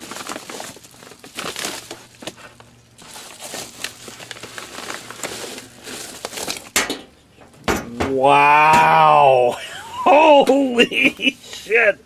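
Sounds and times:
padded envelope crinkling: 0.0s - 6.8s.

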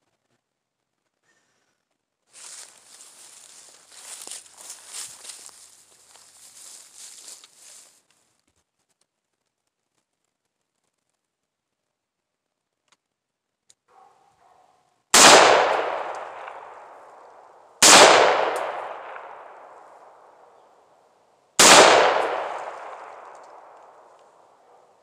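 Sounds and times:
rifle shots echoing: 15.1s - 20.6s, 21.6s - 25.0s.

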